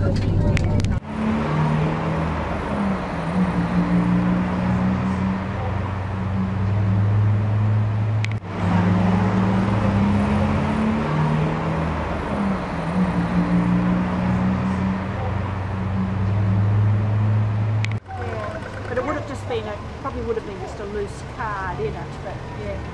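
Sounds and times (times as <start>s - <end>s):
vehicle engines humming: 0.0s - 22.9s
click: 8.2s - 8.4s.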